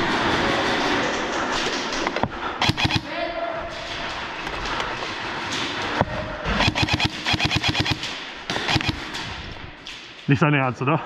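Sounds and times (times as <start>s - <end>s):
airsoft guns firing: 2.6s - 3.1s, 6.5s - 9.2s.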